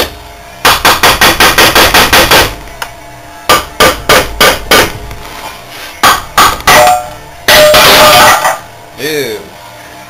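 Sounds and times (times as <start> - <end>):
hammer tapping on metal: 3.5 - 5.0, 6.0 - 8.6.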